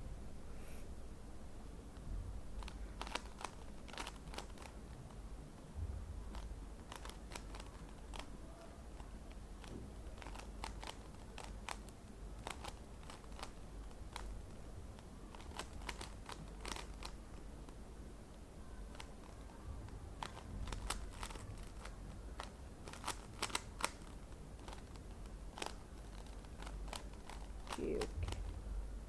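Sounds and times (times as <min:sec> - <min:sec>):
puzzle cube clicking as twisted: 0:02.6 - 0:04.8, 0:06.3 - 0:08.3, 0:09.0 - 0:14.3, 0:15.3 - 0:17.2, 0:18.9 - 0:19.5, 0:20.2 - 0:28.5.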